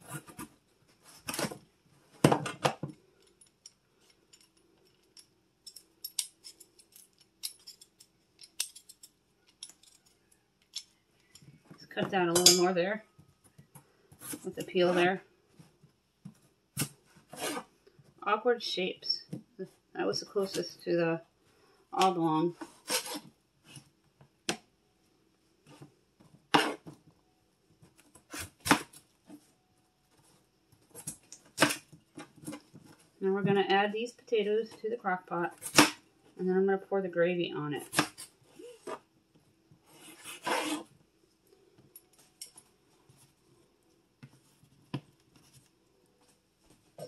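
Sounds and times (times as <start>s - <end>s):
vegetable peeler scraping potato: 17.3s - 17.7s, 22.8s - 23.3s, 39.9s - 40.9s.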